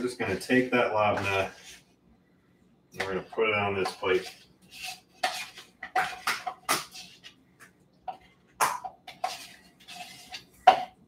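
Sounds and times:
knife scraping plastic tub: 0.2 - 1.9, 3.0 - 7.4, 9.0 - 11.0.

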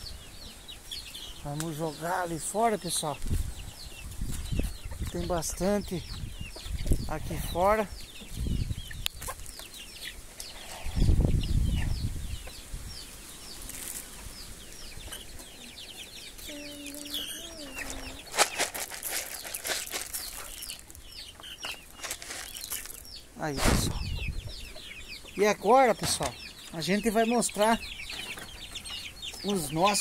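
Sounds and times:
chicks peeping: 0.0 - 30.0
hen calling: 14.2 - 18.6.

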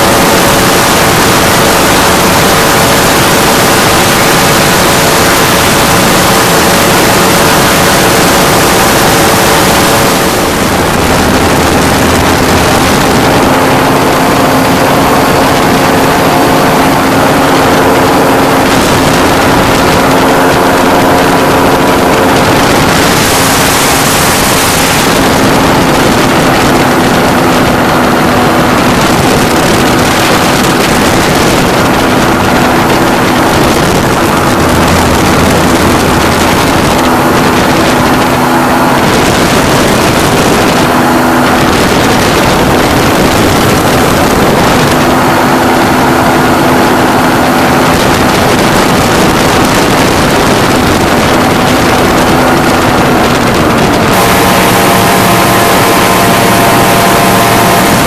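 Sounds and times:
engine and propeller running: 0.0 - 58.0
wind rushing over microphone: 0.0 - 58.0.

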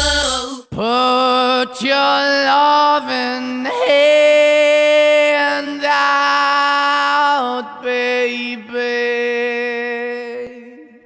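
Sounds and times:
hip-hop beat with heavy bass: 0.0 - 0.5.

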